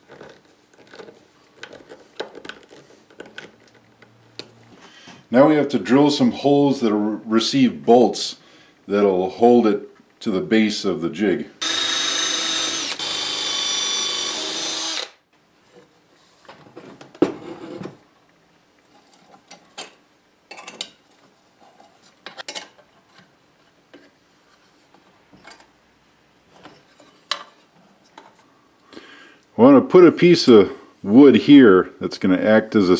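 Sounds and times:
cordless drill boring into wood: 11.6 - 15.2.

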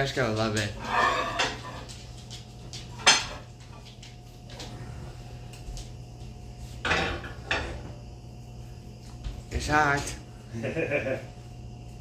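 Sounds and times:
kitchenware clanking: 0.7 - 2.1, 2.8 - 4.0, 6.8 - 8.0.

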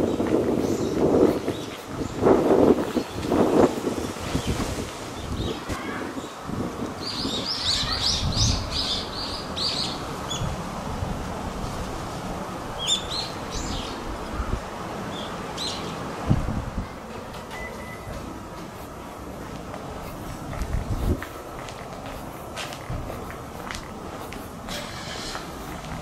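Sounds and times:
songbird chirping: 12.8 - 16.1.

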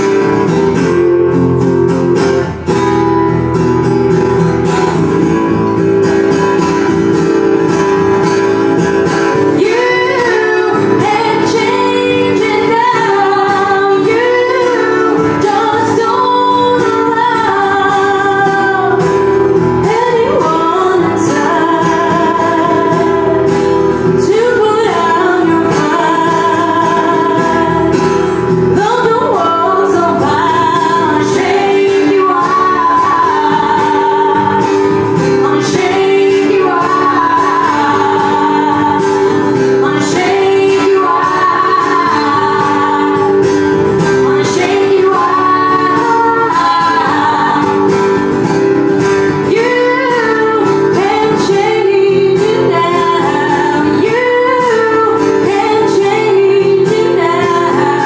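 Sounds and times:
guitar: 0.0 - 58.0
woman singing with vibrato: 0.0 - 58.0.

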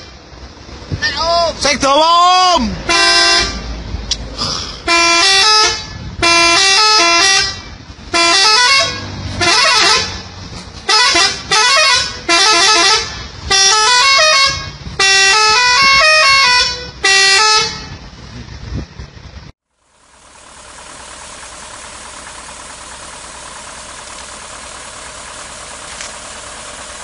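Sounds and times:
multi-tone truck horn blasts: 2.8 - 3.8, 4.8 - 18.2.

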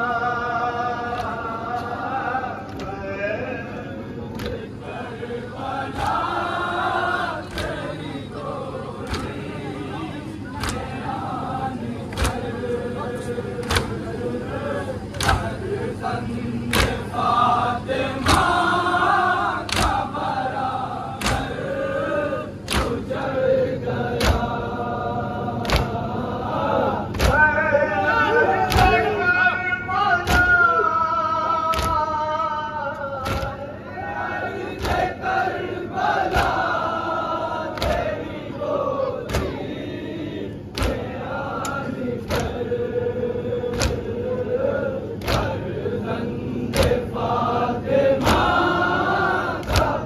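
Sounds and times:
crowd of men singing in unison: 0.0 - 50.0
synchronized chest-beating: 4.3 - 27.6, 33.1 - 50.0
hands slapping chests: 10.6 - 10.9, 12.1 - 12.5, 13.6 - 14.0, 15.2 - 15.6, 16.7 - 17.0, 19.6 - 20.1, 21.2 - 21.6, 22.7 - 23.0, 25.6 - 26.0, 39.3 - 39.6, 40.8 - 42.6, 43.7 - 44.0, 45.2 - 45.6, 49.6 - 50.0.

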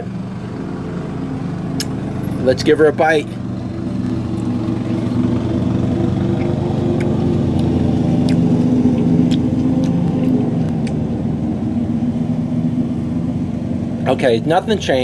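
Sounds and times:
motor humming: 0.0 - 14.0.

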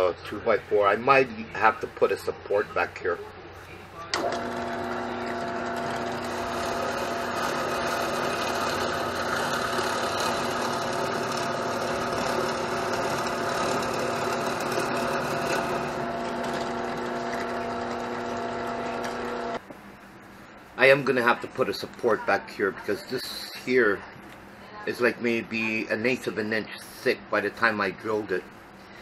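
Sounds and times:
drill press boring into wood: 4.2 - 19.6.

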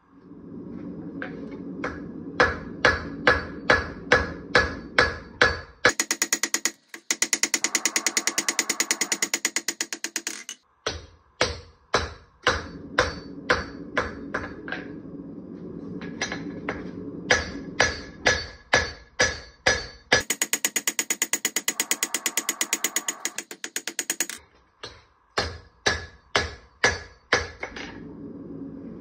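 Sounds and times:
hammer striking blade on anvil: 1.9 - 14.6, 17.3 - 27.7.

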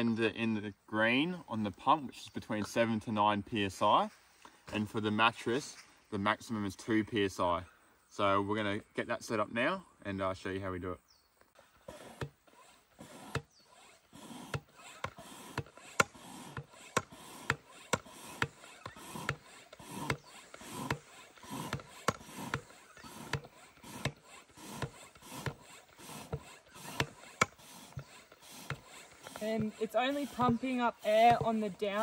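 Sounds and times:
hand pump clicking and rushing air: 11.5 - 32.0.

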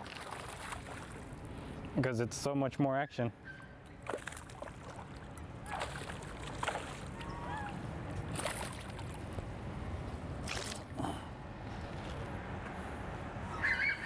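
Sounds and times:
fish splashing in water: 0.0 - 1.4, 4.0 - 9.2, 10.4 - 10.9.

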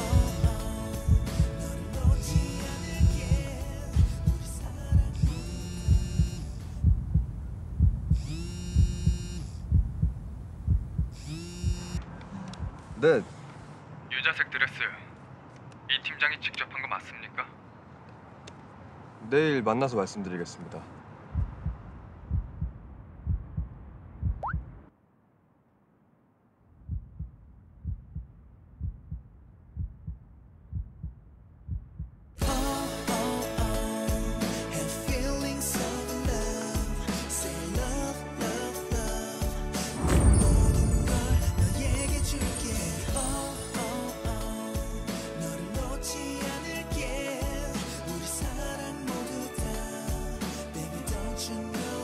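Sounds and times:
music: 0.0 - 6.6, 32.4 - 52.0
heartbeat thumps: 0.0 - 13.0, 21.3 - 24.8, 26.8 - 32.7, 39.0 - 43.5.

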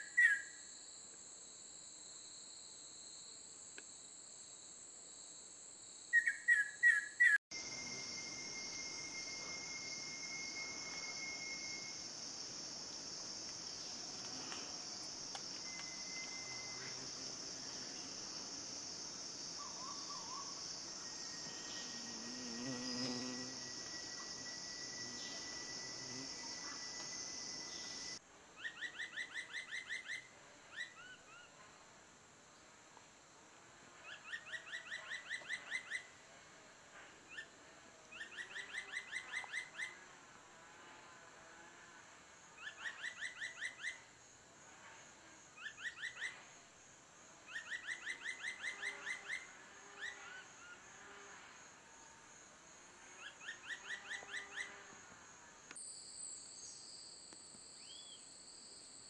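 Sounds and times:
insect drone: 0.0 - 59.0
bird whistling song: 6.2 - 12.0.

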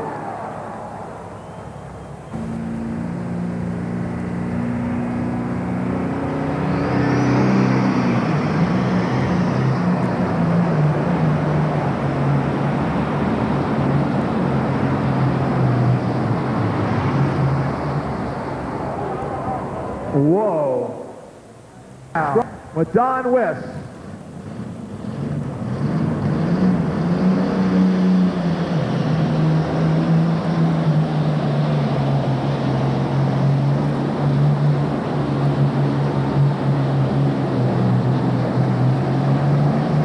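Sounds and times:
high turbo whistle: 0.0 - 4.0, 17.6 - 21.4
diesel engine running: 0.0 - 40.0.

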